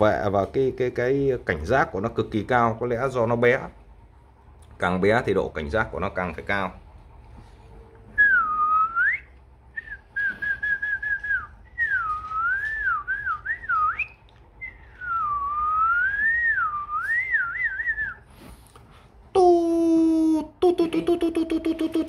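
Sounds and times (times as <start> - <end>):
person whistling: 8.2 - 18.3.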